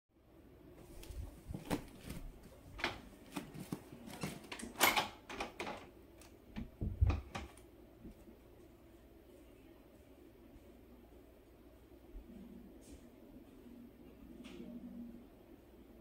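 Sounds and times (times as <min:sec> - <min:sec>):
rustling: 0:00.8 - 0:04.7.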